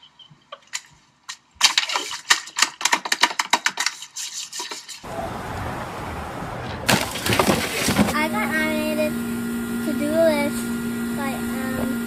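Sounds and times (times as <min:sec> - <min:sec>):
steady rushing noise: 0:05.1 - 0:08.2.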